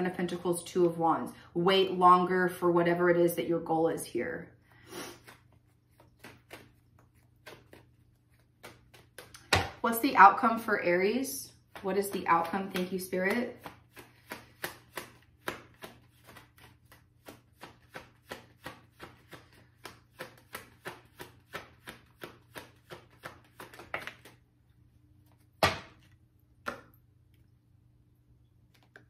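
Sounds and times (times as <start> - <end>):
cards shuffling: 5.0 - 9.6, 11.7 - 24.4.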